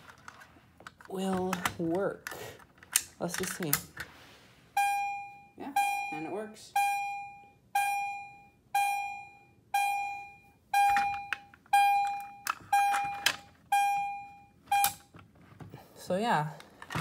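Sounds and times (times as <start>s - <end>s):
fire alarm horn pulsing: 4.8s - 15.0s.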